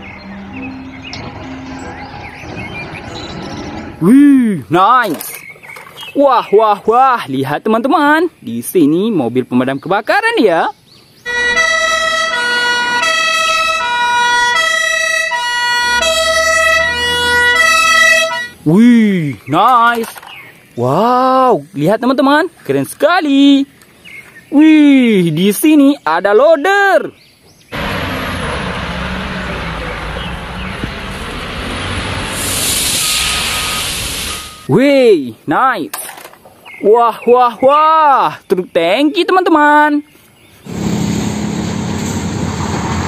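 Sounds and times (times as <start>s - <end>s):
low rumble: 0.0s - 4.1s
diesel engine droning: 0.0s - 4.7s, 11.3s - 19.3s, 27.7s - 34.7s, 40.6s - 43.0s
two-tone fire engine siren: 11.3s - 18.6s, 31.2s - 34.7s.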